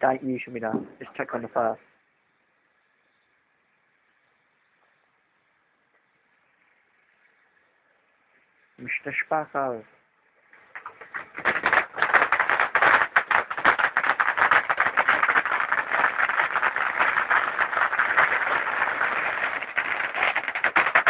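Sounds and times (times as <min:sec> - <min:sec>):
firework crackling: 0:10.5 - 0:21.0.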